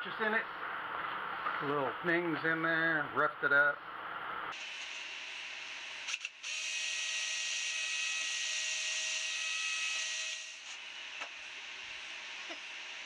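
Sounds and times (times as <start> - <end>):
cordless drill whining: 5.9 - 12.3.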